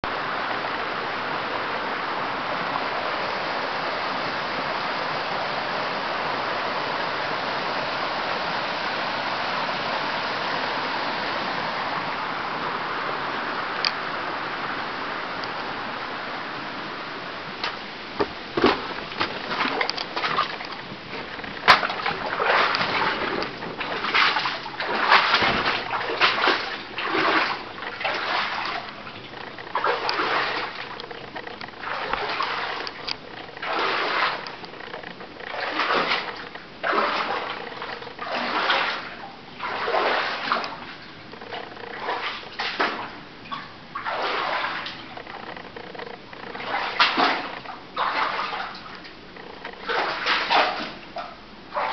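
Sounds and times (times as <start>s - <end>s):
footsteps wading through water: 17.4s - 51.9s
sharp knocks: 17.6s - 20.5s.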